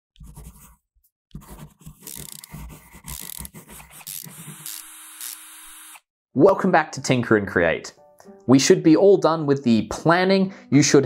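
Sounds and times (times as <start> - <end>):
scratchy scribbling: 0.2 - 4.9.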